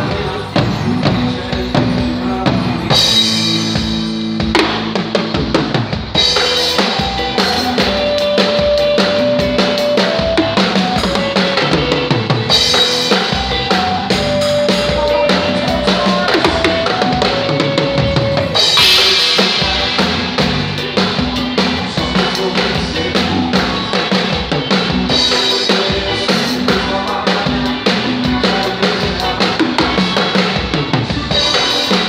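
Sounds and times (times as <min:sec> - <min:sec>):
held keyboard notes: 0:00.0 - 0:30.7
drum kit playing: 0:00.0 - 0:32.0
cymbal crash: 0:18.6 - 0:20.9.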